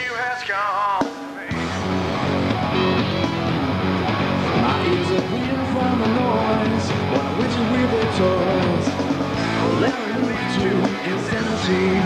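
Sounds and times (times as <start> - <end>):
rock music with guitar: 0.0 - 12.0
person singing: 4.4 - 12.0.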